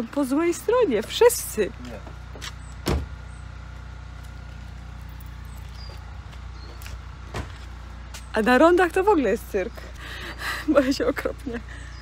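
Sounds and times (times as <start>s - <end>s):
car engine idling: 0.0s - 12.0s
thump: 2.8s - 3.1s.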